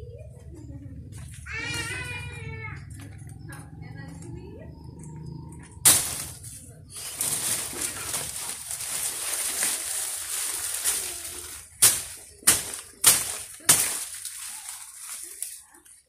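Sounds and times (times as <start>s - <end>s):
machete chopping plant: 5.8s - 6.4s, 10.9s - 15.0s
dry leaves rustling and crackling: 5.8s - 16.0s.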